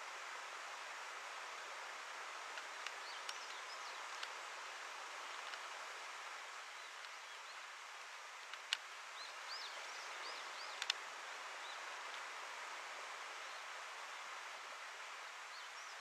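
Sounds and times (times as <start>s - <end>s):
outdoor background hiss: 0.0s - 16.0s
sharp clicks: 10.8s - 11.0s.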